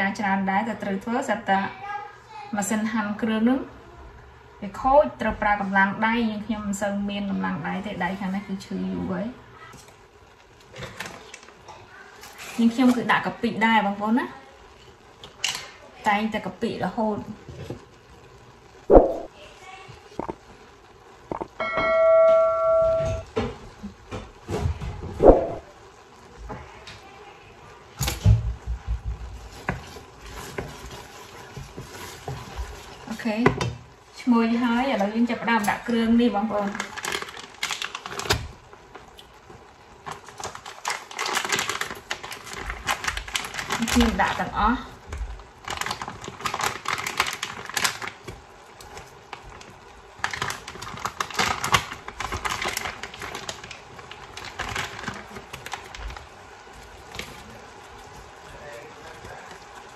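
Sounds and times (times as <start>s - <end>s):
spatula stirring liquid in pot: 29.2s - 33.8s
plastic bag crinkling: 29.4s - 33.2s, 35.5s - 59.9s.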